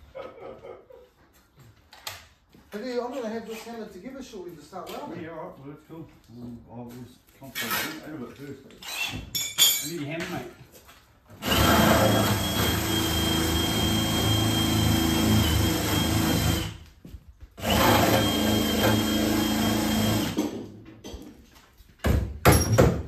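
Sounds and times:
power drill whining: 0:11.4 - 0:16.8, 0:17.6 - 0:20.4.

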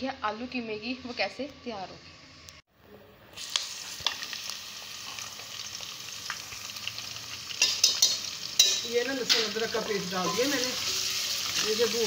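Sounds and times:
onions sizzling in oil: 0:03.3 - 0:12.0.

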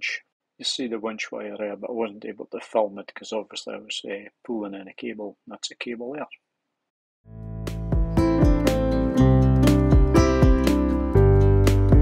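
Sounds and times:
plucked strings music: 0:07.7 - 0:12.0.

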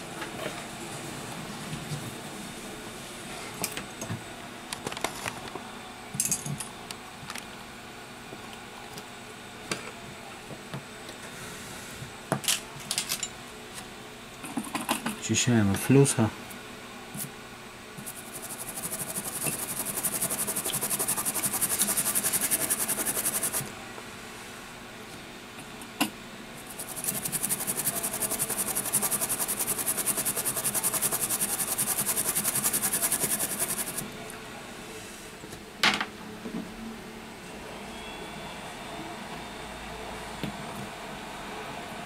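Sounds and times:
toothbrush scrubbing circuit board: 0:18.0 - 0:23.6, 0:26.6 - 0:34.0.

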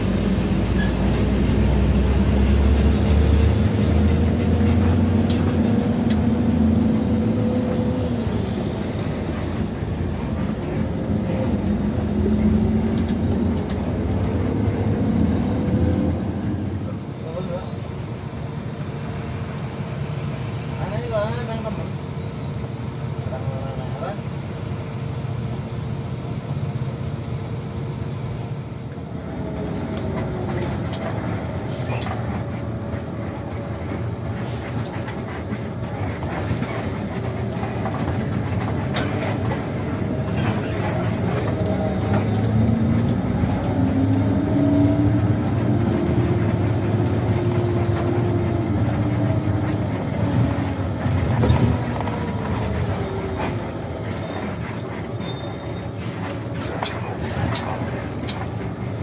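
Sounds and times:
bus engine and road rumble: 0:00.0 - 0:59.0.

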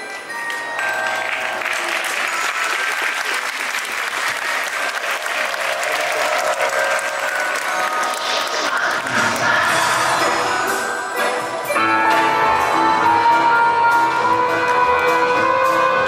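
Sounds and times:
soft music: 0:00.0 - 0:16.0
audience applause: 0:00.5 - 0:09.6.

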